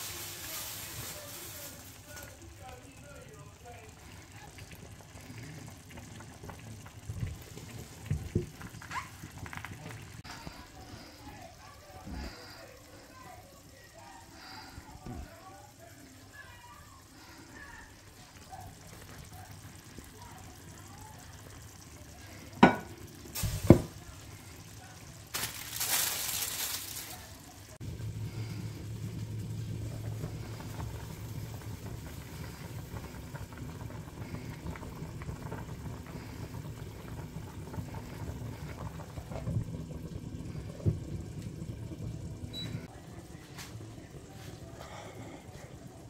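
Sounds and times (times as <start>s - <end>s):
water boiling and bubbling: 0.0s - 46.0s
glass lid knocking on pan: 22.6s - 23.0s.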